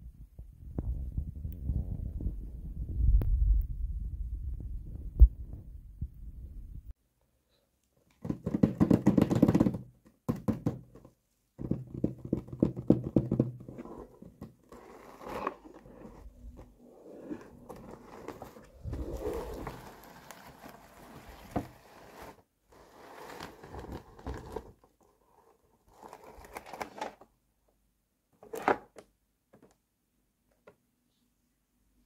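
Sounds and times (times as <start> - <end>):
fingers tapping on cardboard box: 8.2 - 11.0
scraping on cardboard box: 13.7 - 24.7.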